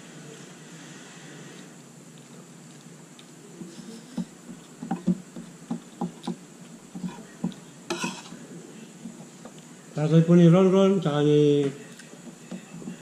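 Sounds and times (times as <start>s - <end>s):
chewing sounds: 1.6s - 7.8s
fork on a plate: 7.0s - 8.4s.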